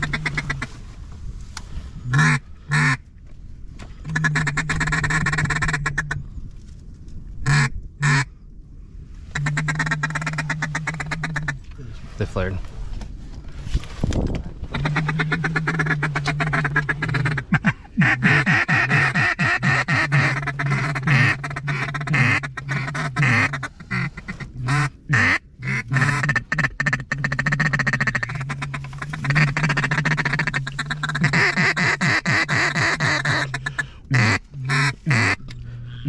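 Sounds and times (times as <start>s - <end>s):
duck call quacks: 2.1s - 3.0s, 4.1s - 6.2s, 9.4s - 11.6s, 14.7s - 36.0s.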